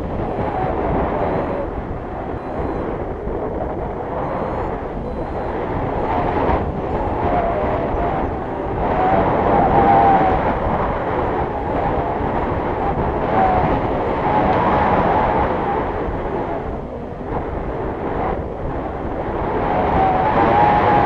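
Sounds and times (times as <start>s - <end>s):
wind buffeting microphone: 0.0s - 21.0s
thin wavering whistle: 0.3s - 1.7s, 2.4s - 2.9s, 4.2s - 6.4s.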